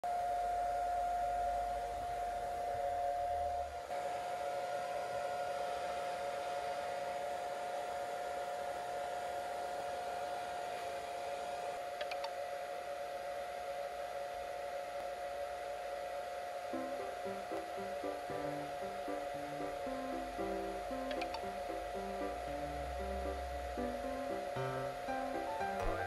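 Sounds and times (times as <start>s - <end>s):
hair dryer blowing air: 3.9s - 12.0s.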